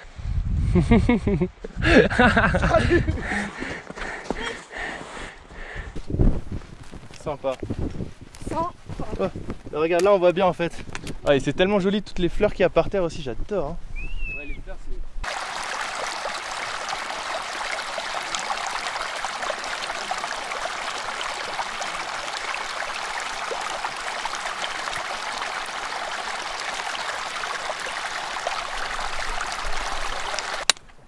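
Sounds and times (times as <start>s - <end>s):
stream running over rocks: 15.2s - 30.7s.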